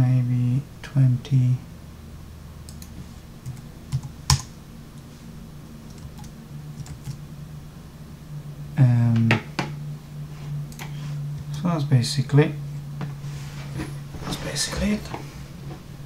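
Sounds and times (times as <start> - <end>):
low steady hum: 0.0 - 16.0
computer keyboard key presses: 3.5 - 4.5.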